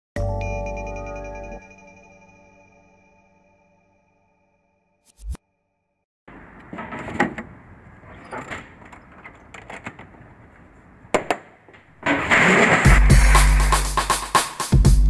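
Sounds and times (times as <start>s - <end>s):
case scraping: 11.8s - 13.8s.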